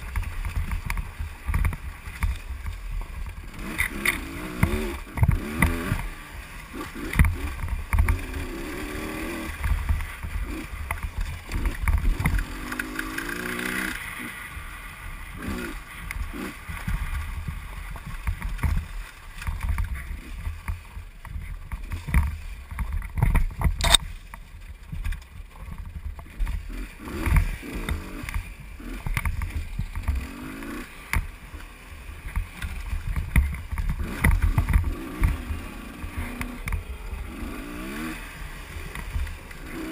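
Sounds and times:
dirt bike engine revving: 3.4 - 17.8, 26.2 - 39.9
sharp click: 23.7 - 24.0
wind rumble on microphone: 31.2 - 39.9.

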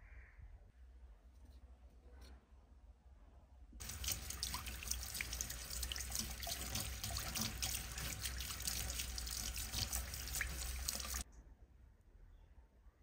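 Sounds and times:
tap water splashing into sink: 3.8 - 11.2.

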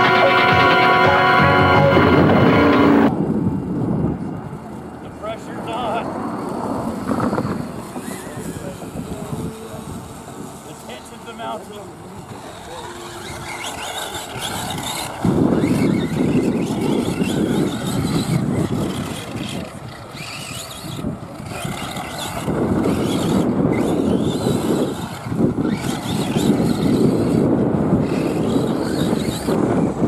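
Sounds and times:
loud low rushing noise: 0.0 - 3.2
rc car electric motor whine: 7.0 - 30.0.

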